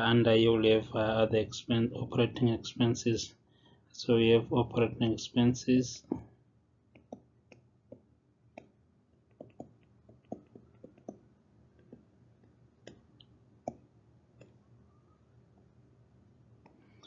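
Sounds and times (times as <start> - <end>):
stylus tapping on a tablet: 6.9 - 14.6.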